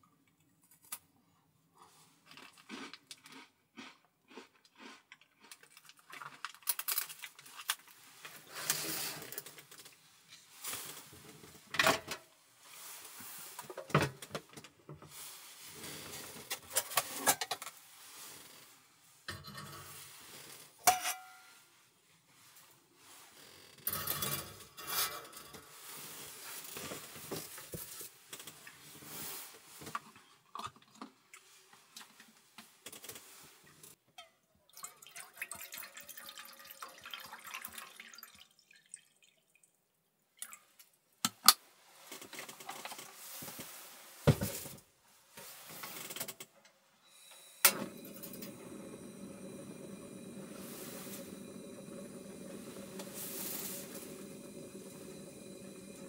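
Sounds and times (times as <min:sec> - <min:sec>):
water pouring into cup: 0:34.7 - 0:39.6, 0:47.9 - 0:56.0
gas burner hissing: 0:47.6 - 0:56.0.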